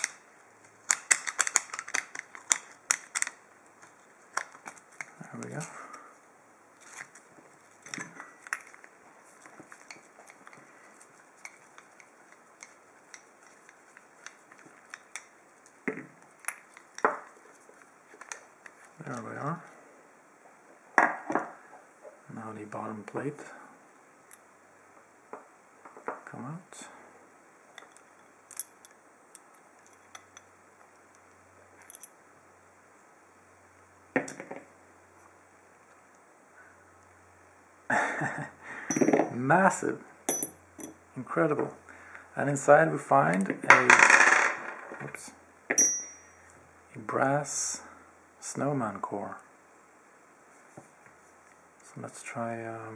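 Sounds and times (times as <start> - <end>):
padlock parts clicking and clinking: 0.8 - 5.7, 27.8 - 30.5, 31.8 - 32.2, 38.9 - 39.4, 40.3 - 41.0, 45.7 - 46.4
small metal clicks and scrapes: 0.8 - 5.7.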